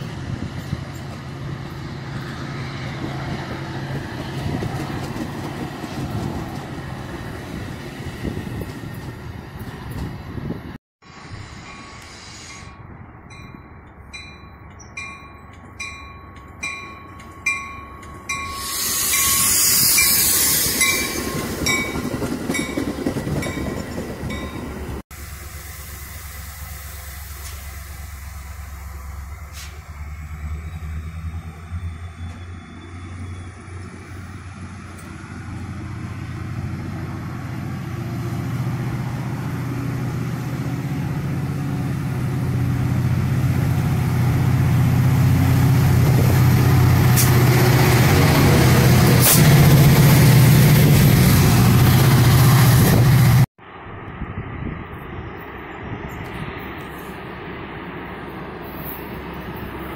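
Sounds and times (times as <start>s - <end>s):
diesel locomotive rumble: 0.0s - 59.9s
bell ringing: 13.3s - 20.2s.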